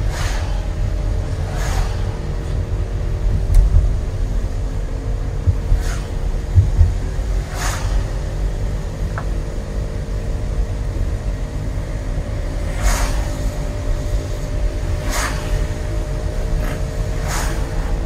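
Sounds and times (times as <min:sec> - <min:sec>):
car road rumble: 0:00.0 - 0:18.0
brief swishes: 0:00.1 - 0:00.6, 0:01.5 - 0:02.2, 0:07.5 - 0:08.0, 0:12.8 - 0:13.3, 0:15.0 - 0:15.6, 0:17.2 - 0:17.8.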